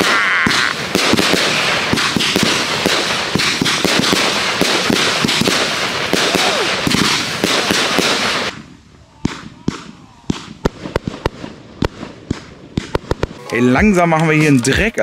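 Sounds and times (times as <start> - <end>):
firework crackle: 0.0 - 13.4
firework bangs: 0.0 - 14.4.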